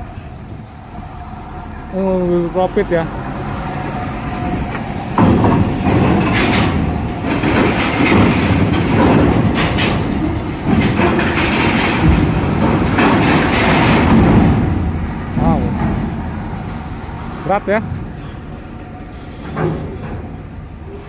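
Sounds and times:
truck engine and tyre rumble: 0:00.0 - 0:21.0
steel plates clanking and rattling: 0:04.3 - 0:21.0.

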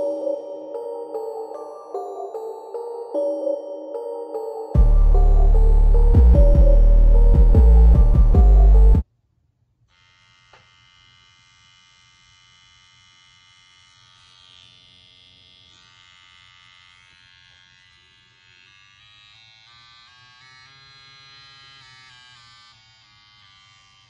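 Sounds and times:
tattoo machine motor buzz: 0:09.9 - 0:24.0.

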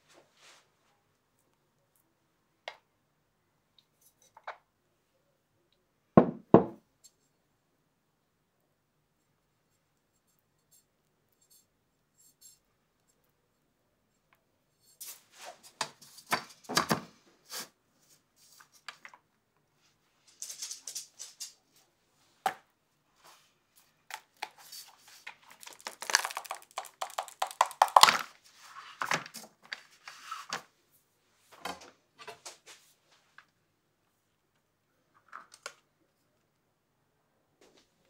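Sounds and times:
silicone mold crackling and peeling: 0:23.8 - 0:28.4.

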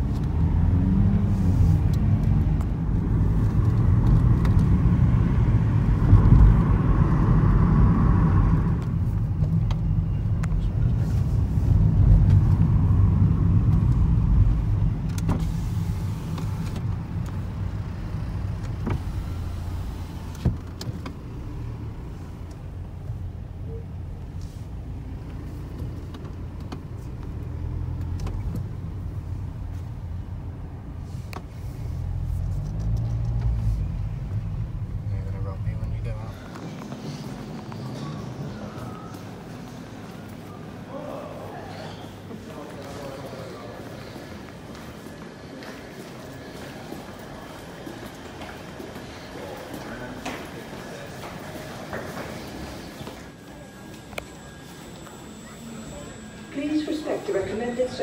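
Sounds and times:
vehicle low rumble: 0:00.0 - 0:58.0.

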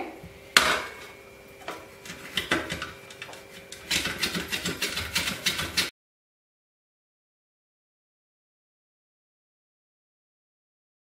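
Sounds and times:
mango scraping on chip slicer: 0:01.6 - 0:05.9.

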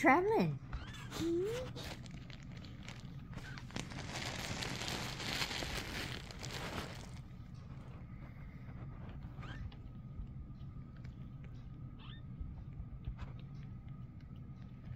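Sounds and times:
fabric rustling and scratching: 0:01.7 - 0:07.9.

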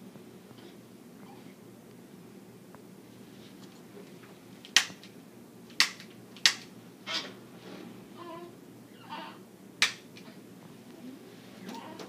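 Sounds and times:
soft rustling: 0:03.0 - 0:04.6
sharp loud clicks: 0:04.7 - 0:05.1, 0:05.7 - 0:06.7, 0:09.8 - 0:10.2.

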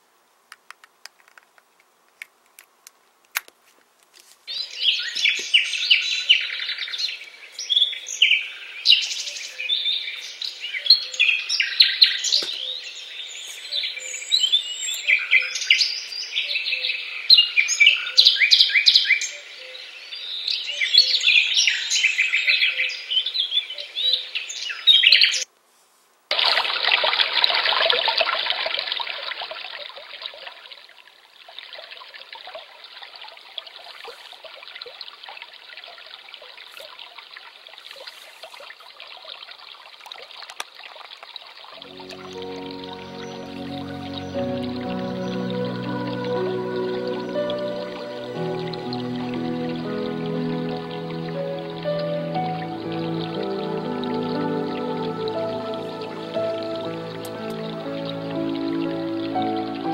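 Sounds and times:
brook water flowing: 0:04.5 - 0:19.3, 0:26.3 - 0:59.9
birds chirping and singing: 0:04.5 - 0:25.4, 0:41.8 - 0:59.9.

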